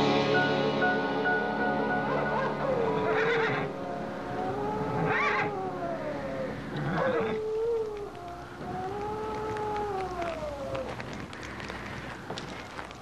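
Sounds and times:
wild animal howling: 0:02.1 - 0:11.7.

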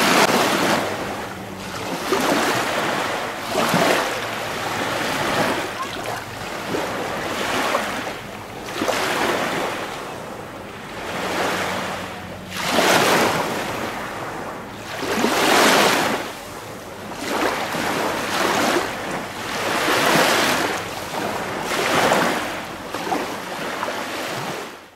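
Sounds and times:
small waves lapping: 0:00.0 - 0:24.8.

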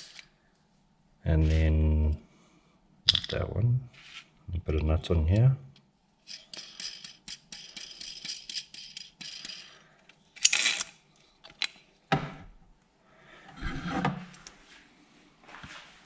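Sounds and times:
metal nut rattling on rod: 0:06.3 - 0:09.8.

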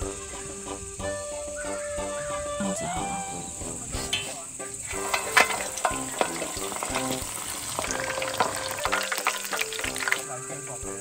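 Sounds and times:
food deep-frying in oil: 0:04.1 - 0:10.4.

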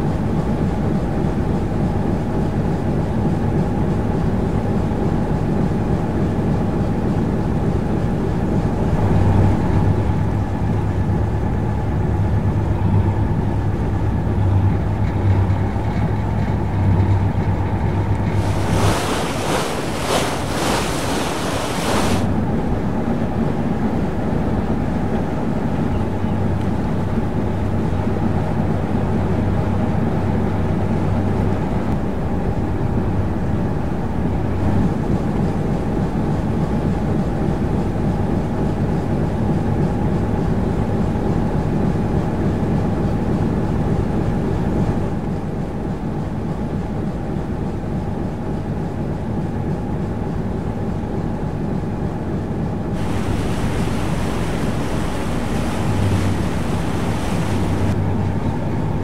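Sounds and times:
water rushing along hull: 0:16.8 - 0:23.1, 0:53.0 - 0:58.1
wind on microphone: 0:18.3 - 0:22.3, 0:53.0 - 0:58.0
boat diesel engine running: 0:53.0 - 0:58.0.

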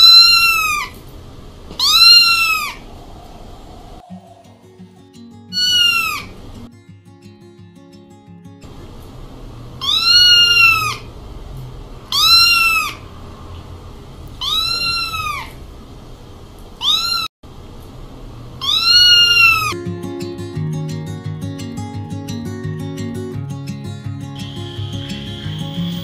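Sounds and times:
kitten meowing in distress: 0:14.4 - 0:15.4, 0:16.8 - 0:17.3.

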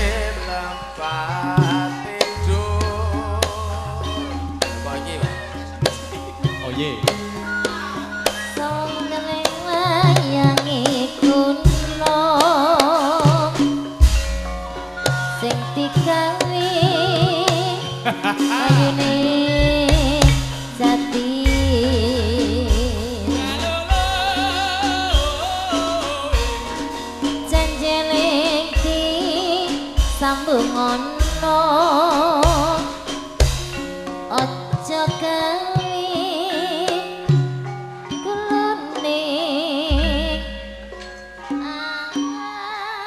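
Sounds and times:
gamelan music: 0:00.0 - 0:43.0
struck metallophones: 0:00.0 - 0:43.0
woman singing with vibrato: 0:07.6 - 0:14.0, 0:15.3 - 0:26.6, 0:27.2 - 0:33.1, 0:34.3 - 0:37.4, 0:38.2 - 0:40.8, 0:41.5 - 0:43.0.

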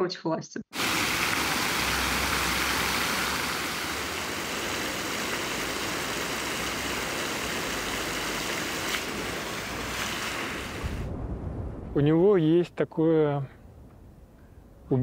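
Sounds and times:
fountain water splashing: 0:00.8 - 0:11.1
street traffic hum: 0:00.9 - 0:11.0.

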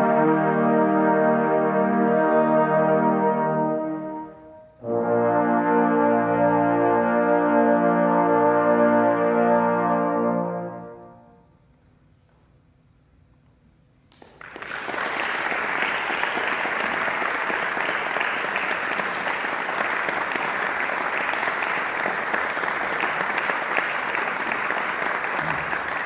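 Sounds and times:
audience applauding: 0:14.1 - 0:26.0.

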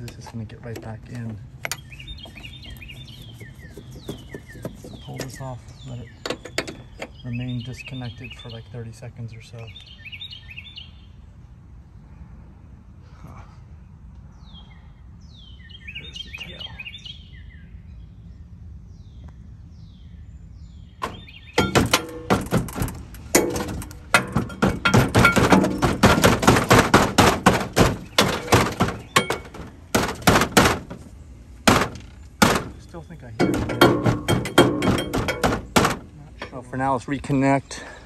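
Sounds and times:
birds chirping faintly: 0:00.0 - 0:38.0
loud knocks and thuds: 0:21.0 - 0:36.2.

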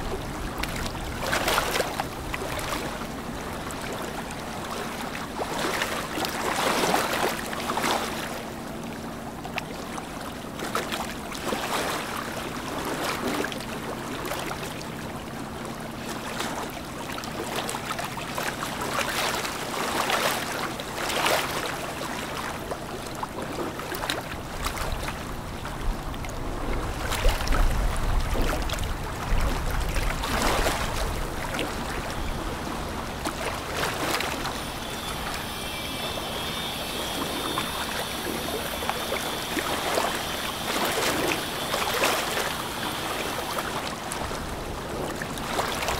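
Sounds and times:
wind and water noise: 0:00.0 - 0:45.9
ship engines droning: 0:30.6 - 0:45.9.

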